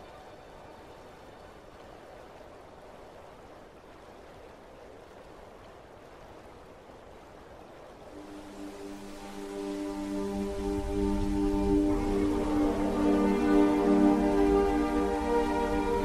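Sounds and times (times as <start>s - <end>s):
rushing water noise: 0.0s - 16.0s
background music melody: 8.0s - 16.0s.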